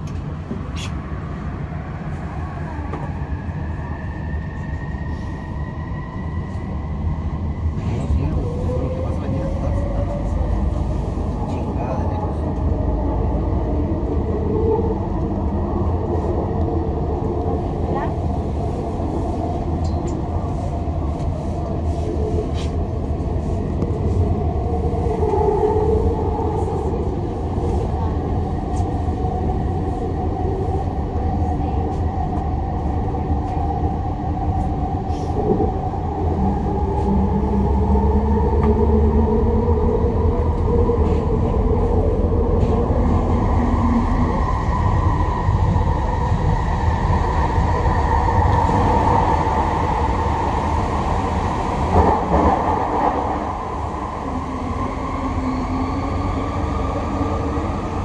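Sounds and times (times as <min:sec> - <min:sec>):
metro train low rumble: 0:00.0 - 0:58.0.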